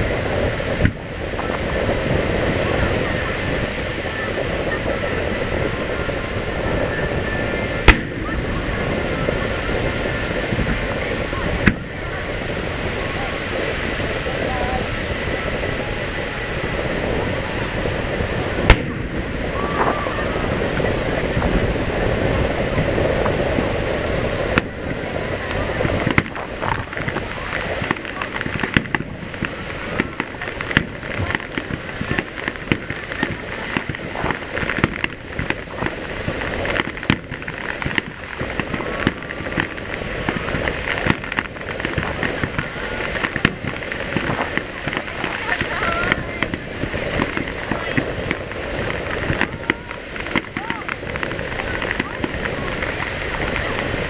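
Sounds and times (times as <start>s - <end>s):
fireworks bangs and crackling pops: 0.0s - 54.0s
murmur of crowd voices: 0.0s - 54.0s
firework shell boom: 7.8s - 8.3s, 18.6s - 20.0s.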